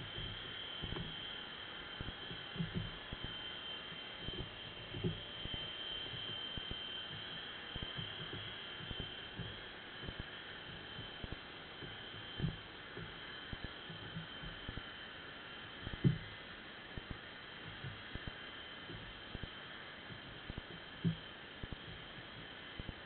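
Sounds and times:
high-pitched whine with hiss: 0.0s - 23.0s
low underwater knocks and thumps: 11.8s - 13.1s, 15.9s - 16.3s.

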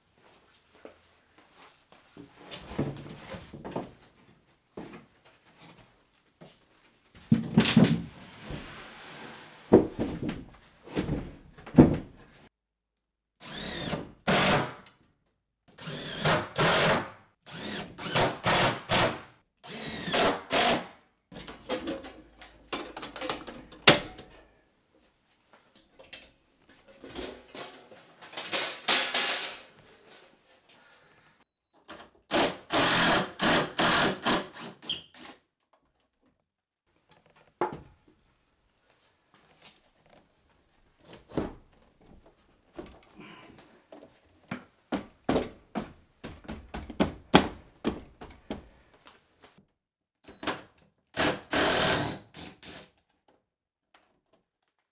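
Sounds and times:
cordless drill bursts: 13.4s - 14.7s, 17.5s - 19.0s, 32.3s - 35.4s, 51.2s - 52.8s.

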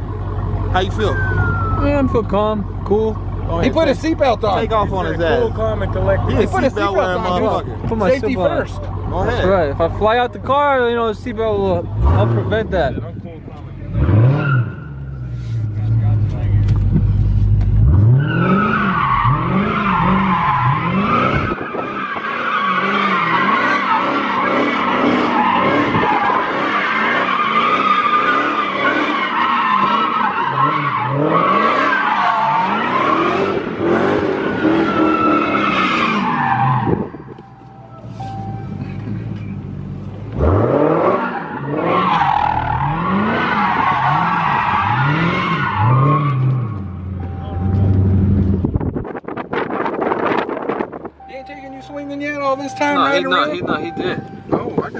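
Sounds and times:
car engine revving: 0.0s - 54.9s
tyres squealing: 17.9s - 39.6s, 40.4s - 48.1s.

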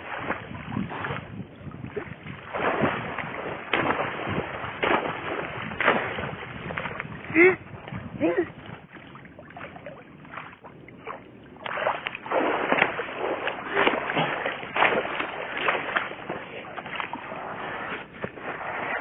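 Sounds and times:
water splashing from swimming: 0.0s - 19.0s.

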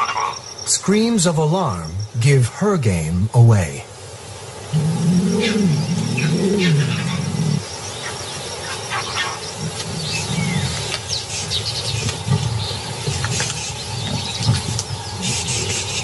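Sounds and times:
baboons shrieking in alarm: 4.8s - 7.7s.

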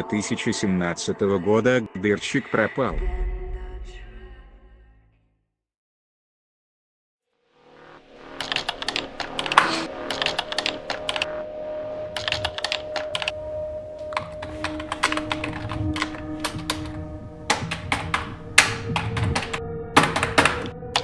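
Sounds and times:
quiet background music: 0.0s - 4.5s, 8.2s - 21.0s
fast keyboard typing: 8.4s - 11.3s, 12.1s - 13.4s, 14.0s - 21.0s.

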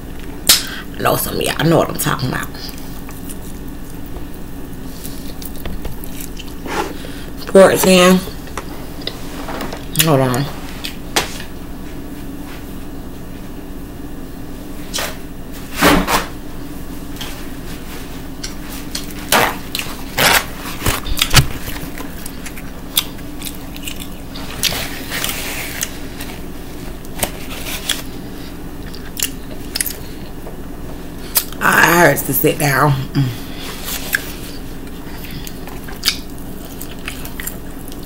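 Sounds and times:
steady low hum: 0.0s - 38.0s
eating sounds: 20.8s - 26.4s, 27.0s - 30.4s, 33.6s - 38.0s
paper towel rustling: 24.3s - 28.6s.

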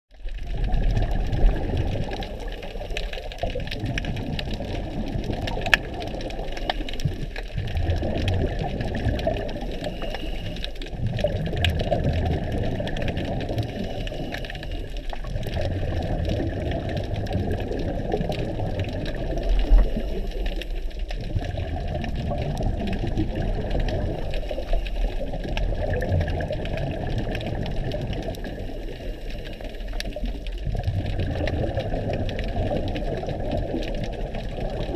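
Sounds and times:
exhaled bubbles rumbling: 0.1s - 34.9s
diver breathing through regulator: 9.5s - 10.9s, 13.5s - 15.1s.

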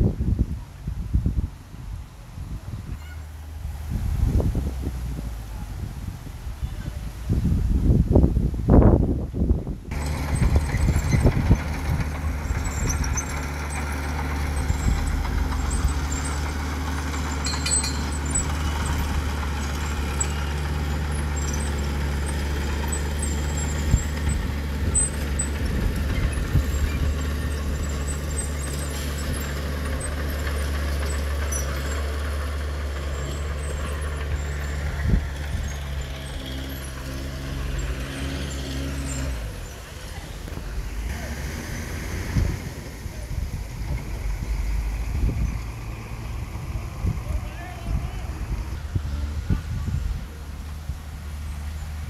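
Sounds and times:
heavy diesel engines humming: 0.0s - 52.0s
faint high clicks and squeaks: 10.0s - 20.7s.

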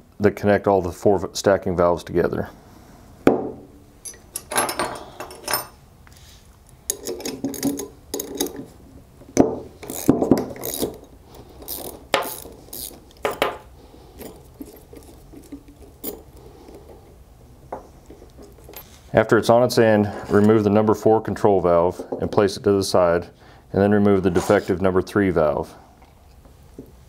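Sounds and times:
wrenches clicking on metal nuts: 6.9s - 8.7s, 9.8s - 13.6s, 14.2s - 16.9s.

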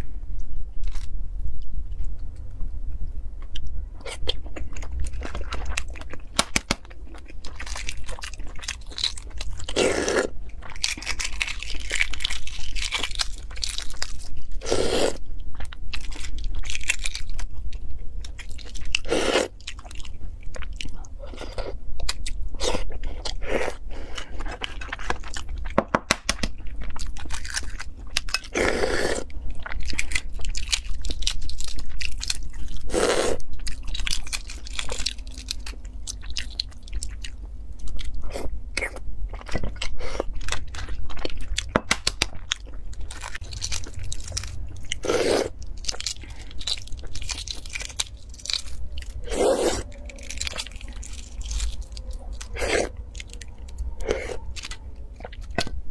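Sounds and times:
eggshells cracking and crunching: 4.4s - 14.9s, 15.5s - 17.6s, 24.4s - 33.0s, 33.6s - 38.2s, 38.8s - 55.8s.

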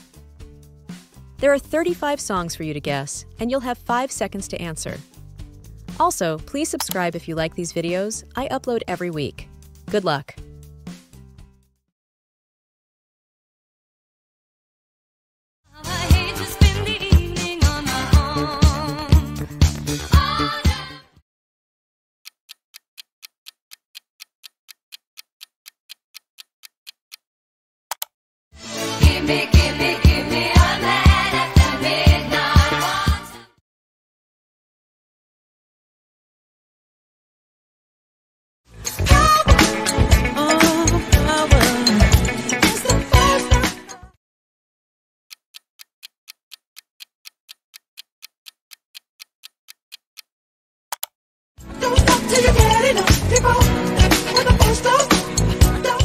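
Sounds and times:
music: 0.0s - 11.9s, 15.7s - 21.2s, 28.6s - 33.6s, 38.7s - 44.2s, 51.6s - 56.0s
clock ticking: 1.4s - 5.0s, 5.9s - 10.3s, 22.2s - 27.2s, 38.8s - 44.0s, 45.3s - 50.3s, 51.8s - 56.0s.

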